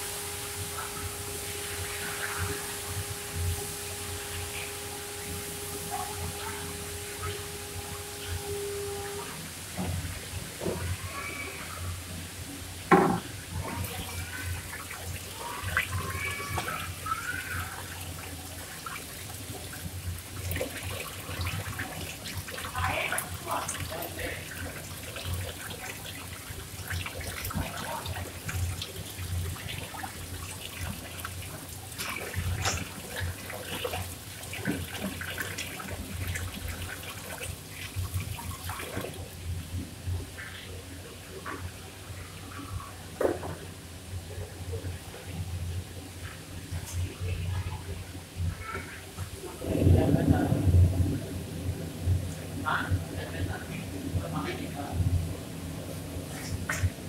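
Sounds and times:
low hum: 0.0s - 10.3s
water running: 0.0s - 57.0s
faint voices: 13.1s - 19.0s.

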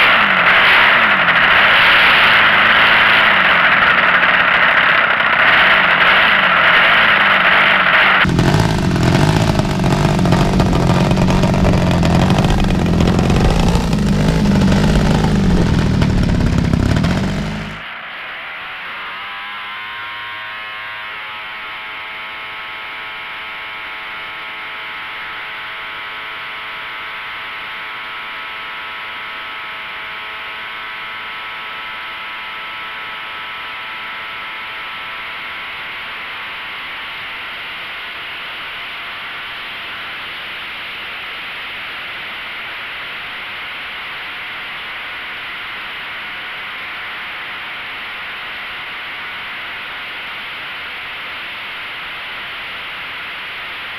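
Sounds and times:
model plane motor whining: 2.4s - 17.8s.

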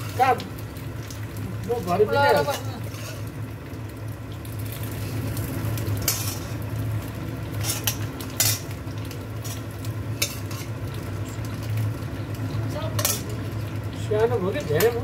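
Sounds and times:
food sizzling on a hot plate: 0.0s - 15.0s
steady low hum: 2.5s - 15.0s
metal spoon scraping a wok: 2.8s - 3.3s, 6.0s - 6.6s, 7.5s - 8.7s, 9.4s - 10.8s, 13.0s - 13.3s.

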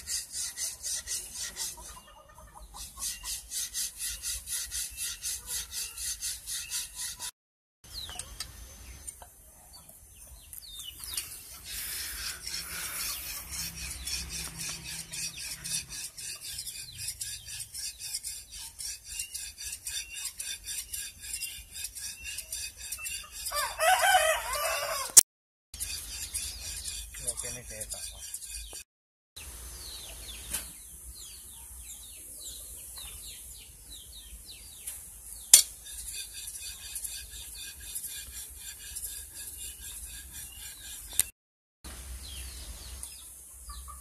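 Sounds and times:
hand file rasping on metal: 0.0s - 7.3s, 11.2s - 24.3s, 25.8s - 28.9s, 35.5s - 41.3s
rooster crowing: 23.5s - 25.2s.

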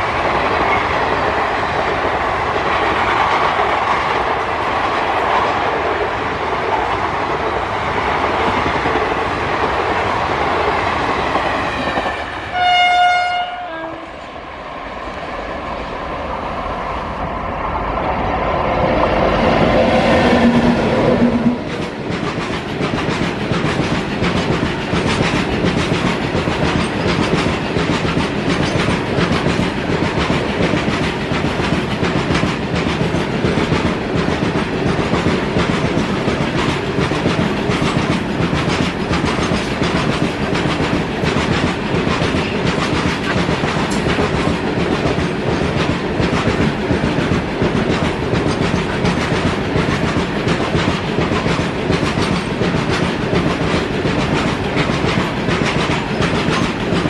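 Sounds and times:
freight train wheels clattering: 19.0s - 57.0s.

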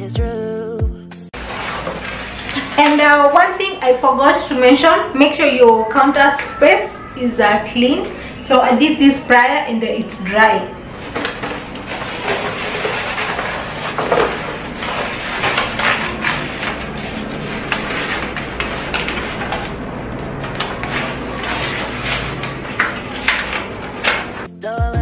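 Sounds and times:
contact paper rustling and crackling: 1.4s - 3.8s, 10.9s - 24.5s.

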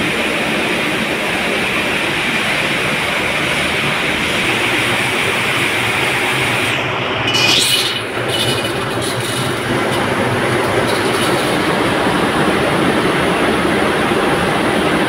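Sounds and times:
factory machinery clattering: 3.9s - 13.7s.

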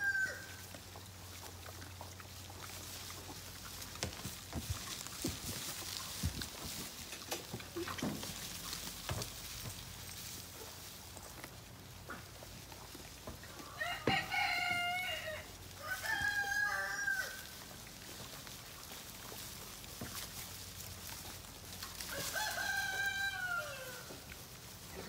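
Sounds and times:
rooster crowing: 0.0s - 0.6s, 13.6s - 17.5s, 22.1s - 24.2s.

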